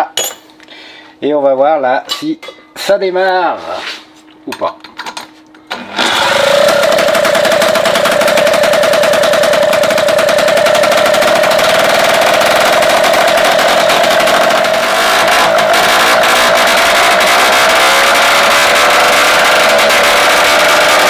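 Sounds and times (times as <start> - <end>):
moped two-stroke engine running: 6.0 - 21.0.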